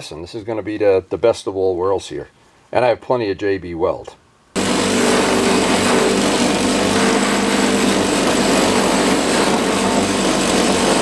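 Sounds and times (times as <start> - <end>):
wire wheel grinding metal: 4.6 - 11.0.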